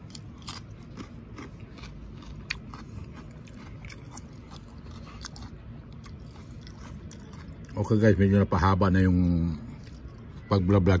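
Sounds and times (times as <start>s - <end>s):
person chewing crunchy vegetables: 0.0s - 8.1s, 9.3s - 10.5s.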